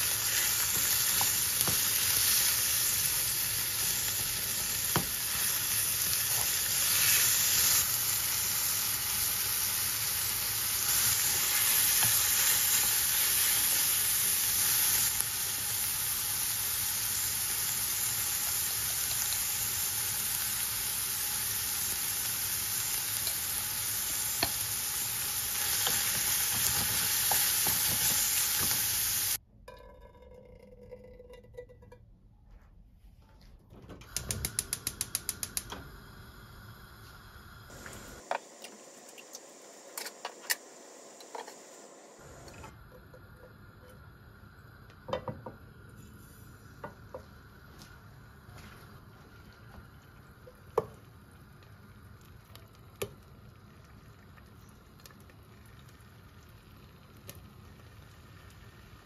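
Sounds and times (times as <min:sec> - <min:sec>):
meat sizzling in a frying pan: 0:00.0 - 0:29.4.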